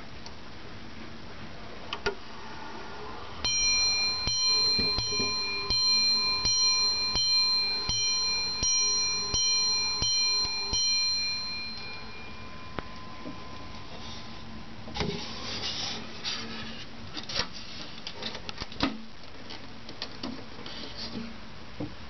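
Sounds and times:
clock bell striking: 3.4s - 14.8s.

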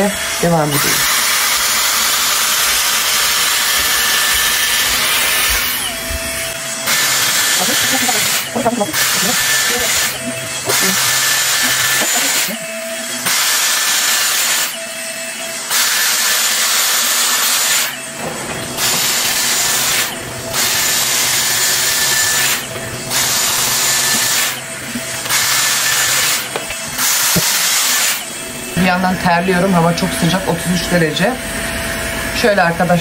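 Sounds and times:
hair straightener blowing air: 0.0s - 32.8s.

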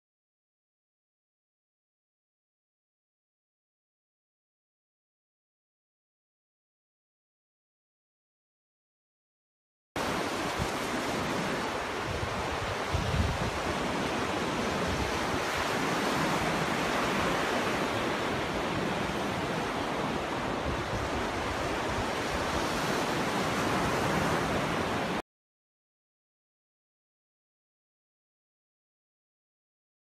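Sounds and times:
surf washing onto beach: 10.0s - 25.2s.

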